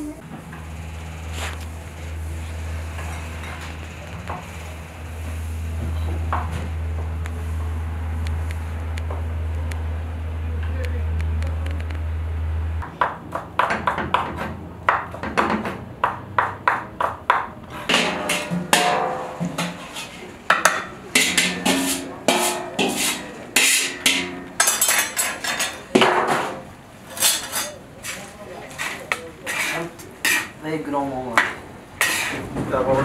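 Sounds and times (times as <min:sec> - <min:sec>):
metal skimmer scraping steel pot: 0:17.9 - 0:30.6, 0:32.0 - 0:32.5.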